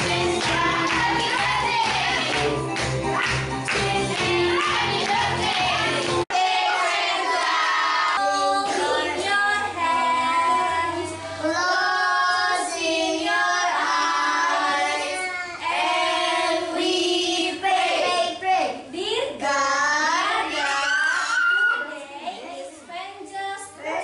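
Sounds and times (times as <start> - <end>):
children singing: 0.0 - 2.6, 3.7 - 18.4.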